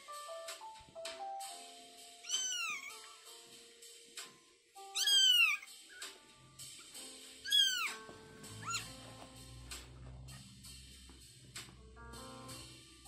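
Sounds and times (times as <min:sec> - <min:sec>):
kitten mewing: 0:02.2 - 0:03.1, 0:04.9 - 0:06.1, 0:07.4 - 0:09.0.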